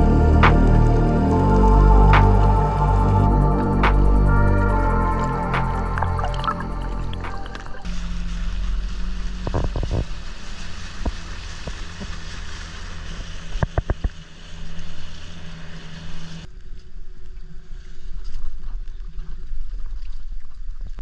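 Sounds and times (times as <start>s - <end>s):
motorboat engine running: 0.0s - 16.4s
wind and water noise: 0.0s - 21.0s.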